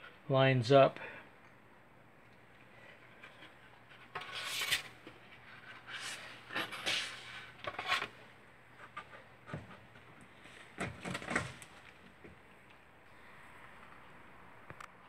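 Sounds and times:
board scraping rustles: 3.1 - 12.0.

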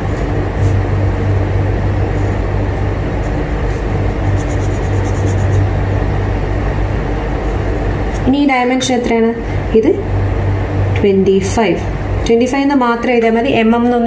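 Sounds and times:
air conditioner hum: 0.0 - 14.0
pencil scratching on paper: 3.2 - 5.7.

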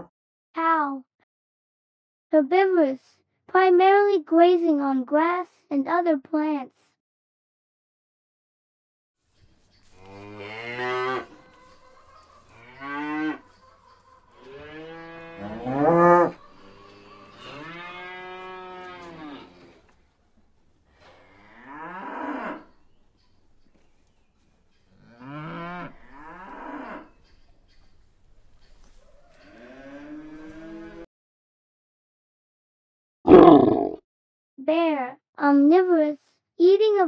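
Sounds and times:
cows mooing: 9.8 - 20.0, 20.8 - 23.1, 24.9 - 27.3, 29.3 - 31.1.

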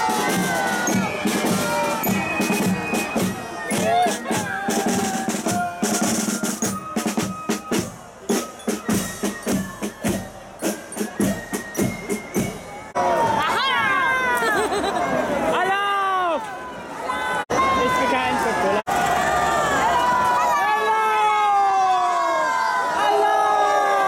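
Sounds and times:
snare drums and fifes march: 0.0 - 13.0
crowd shouting and cheering: 0.0 - 24.0.

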